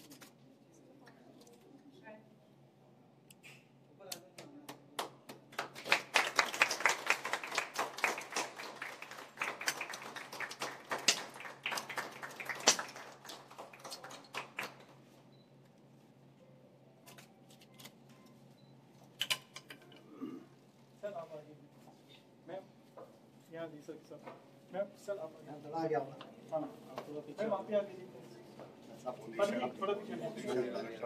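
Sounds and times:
people clapping: 4.3s - 15.0s.

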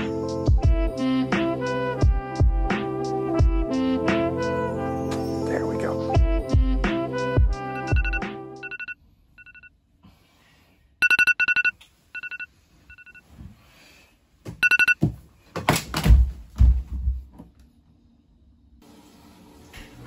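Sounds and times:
electronic alarm beeping: 7.7s - 9.7s, 11.0s - 13.2s, 14.6s - 15.0s.

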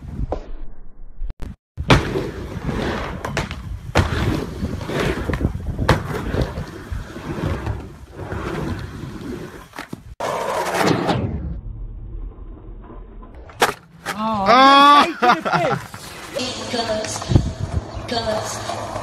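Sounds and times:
skateboard wheels rumbling: 1.8s - 11.0s, 15.5s - 19.0s.

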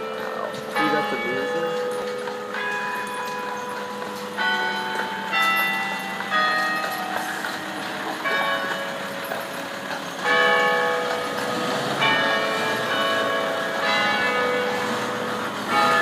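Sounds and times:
church bells ringing: 0.0s - 16.0s.

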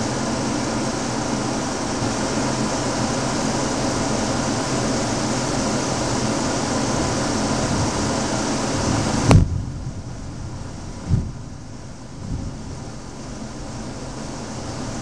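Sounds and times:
heavy rain hiss: 0.0s - 15.0s
sharp knock: 9.3s - 9.6s.

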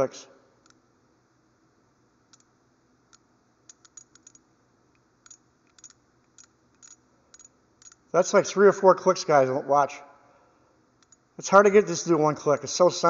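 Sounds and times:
ratchet wrench clicking: 3.1s - 4.4s, 5.2s - 8.0s.

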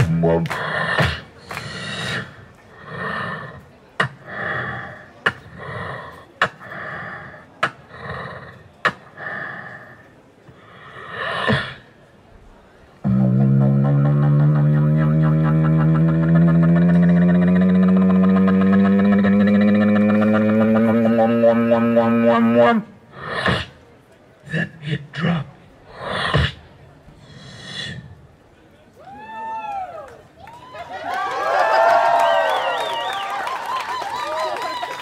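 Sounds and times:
beatboxing clicks and vocal tones: 0.0s - 11.9s, 13.0s - 28.3s
buzzing bass drone: 13.0s - 22.7s.

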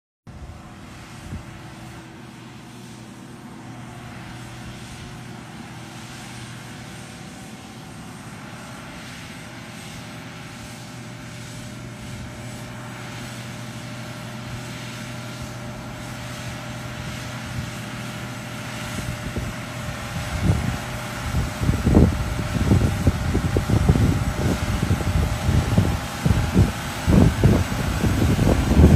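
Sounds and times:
tractor diesel engine droning: 0.3s - 28.9s
uneven low rumbling: 15.4s - 28.9s.

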